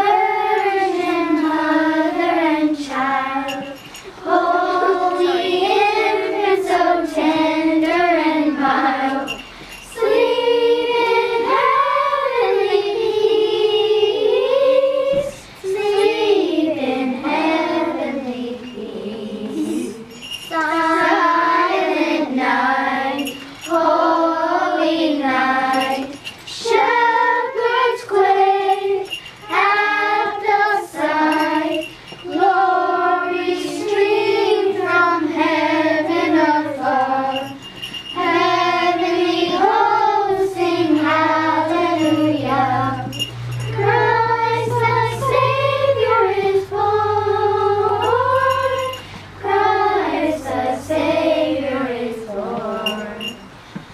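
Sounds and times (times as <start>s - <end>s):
girls singing in unison: 0.0s - 53.9s
low steady hum: 0.0s - 53.9s.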